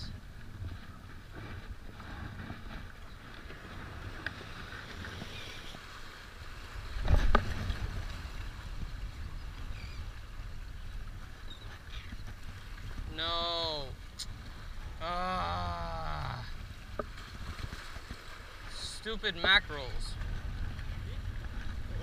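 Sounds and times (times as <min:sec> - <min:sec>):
waves washing against rocks: 0:12.3 - 0:22.0
wind buffeting microphone: 0:19.5 - 0:22.0.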